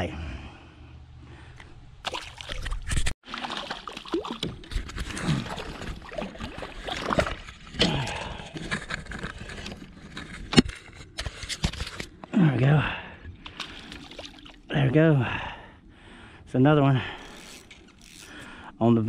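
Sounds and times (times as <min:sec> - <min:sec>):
water sloshing around hull: 0:02.0 - 0:07.8, 0:13.4 - 0:14.7
splashes: 0:02.0 - 0:07.9, 0:13.5 - 0:14.7.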